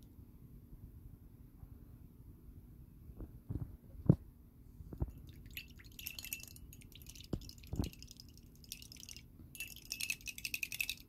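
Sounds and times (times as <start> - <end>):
metal utensil clinking against glass: 5.4 - 11.0.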